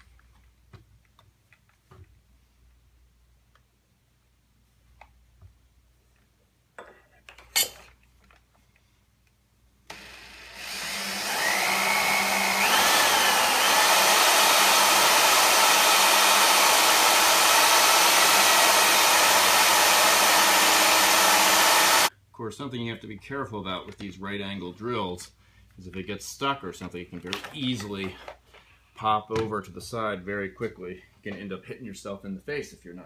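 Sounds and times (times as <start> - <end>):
power drill boring into wood: 9.9 - 22.1.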